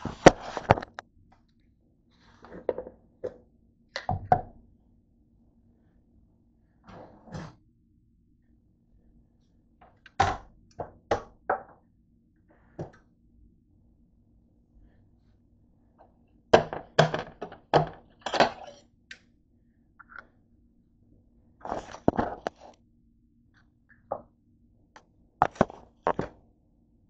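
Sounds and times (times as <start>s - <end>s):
faint low hum: 0.0s - 27.0s
objects clattering on countertop: 2.4s - 3.4s.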